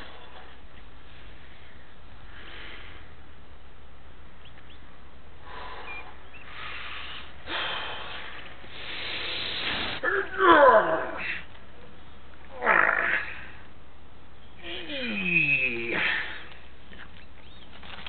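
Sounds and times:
man breathing heavily and straining: 5.4s - 11.6s, 14.6s - 16.8s.

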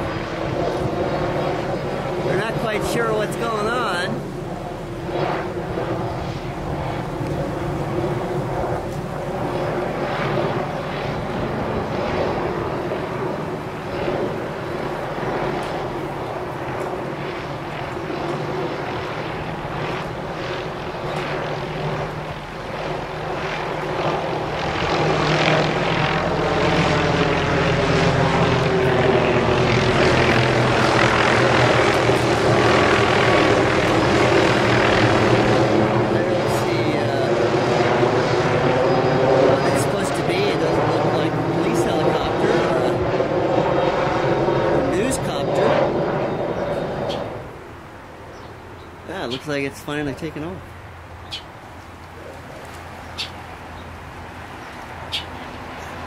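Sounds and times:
helicopter flying overhead: 0.0s - 56.0s.

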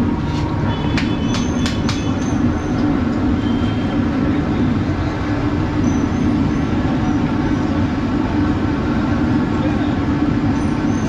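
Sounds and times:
street traffic rumble: 0.0s - 11.0s.

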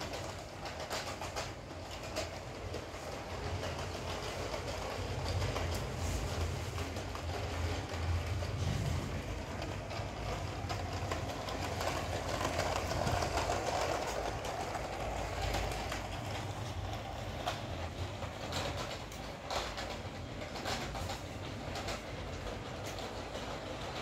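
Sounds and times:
wheels clicking over track joints: 0.0s - 24.0s
toy train motor whirring: 9.6s - 24.0s.

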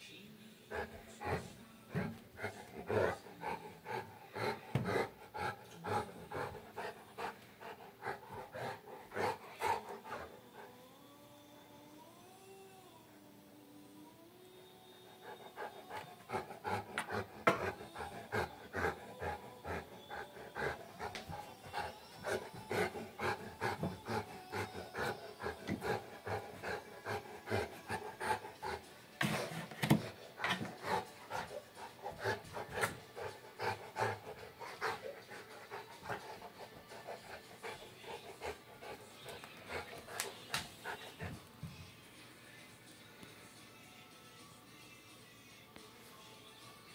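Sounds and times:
dog panting: 0.7s - 10.7s, 15.2s - 41.8s.

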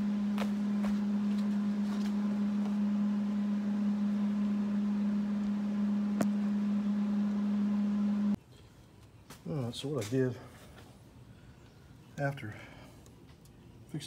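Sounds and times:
machine hum: 0.0s - 8.4s.

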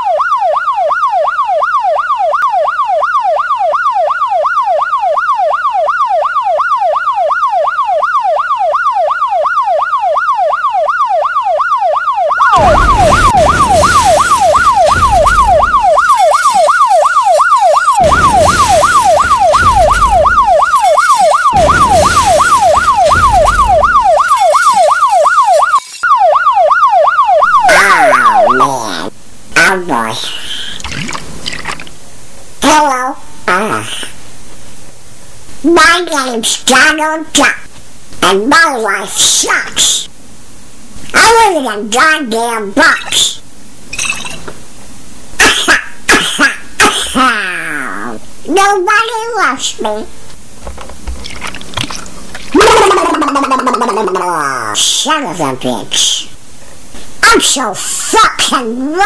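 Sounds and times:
police siren wailing: 0.0s - 29.1s, 52.5s - 54.5s
loud rumbling bursts: 12.4s - 16.4s, 18.0s - 24.5s.

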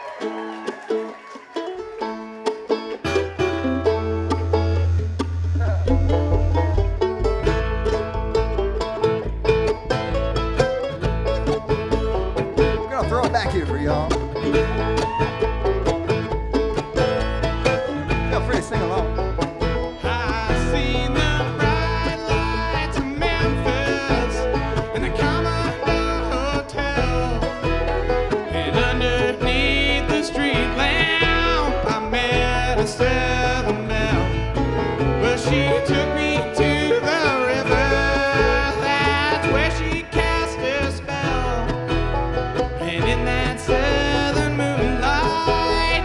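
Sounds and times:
bluegrass band playing: 0.0s - 46.0s
man singing: 19.9s - 27.7s, 28.4s - 34.5s, 35.1s - 41.8s, 42.8s - 46.0s.

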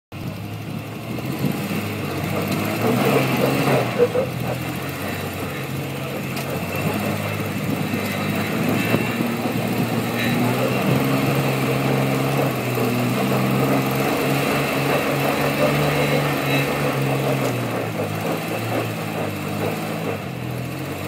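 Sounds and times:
vehicle engine under load: 0.1s - 21.0s.

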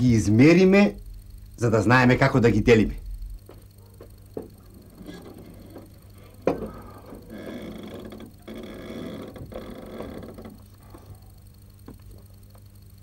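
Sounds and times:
wooden gate hinges creaking: 6.5s - 10.7s.

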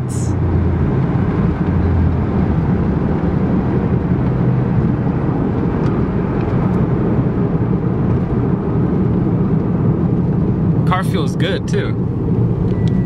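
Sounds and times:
car engine drone: 0.0s - 13.0s
road and tyre noise: 0.0s - 13.0s.

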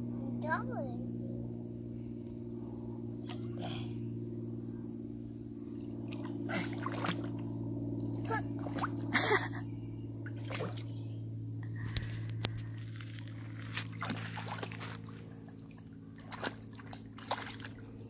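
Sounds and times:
steady low hum: 0.0s - 18.0s
water splashing: 6.1s - 9.3s, 10.3s - 10.9s, 12.8s - 18.0s.

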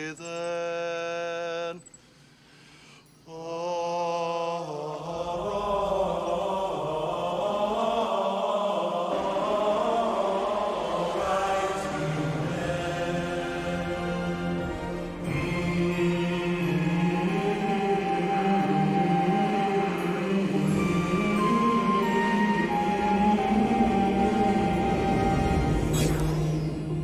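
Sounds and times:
music: 5.2s - 27.0s.

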